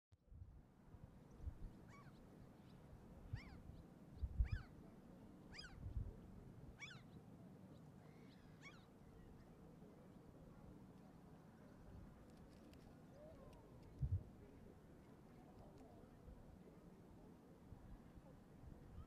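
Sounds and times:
low wind rumble: 0:00.2 - 0:01.9, 0:02.8 - 0:04.9, 0:05.7 - 0:06.8, 0:13.5 - 0:14.8
gulls calling: 0:05.5 - 0:05.9.

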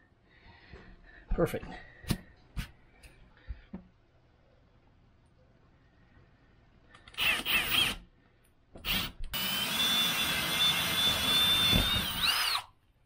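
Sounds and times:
cordless drill cutting through roof: 0:07.1 - 0:08.0, 0:08.8 - 0:12.7.

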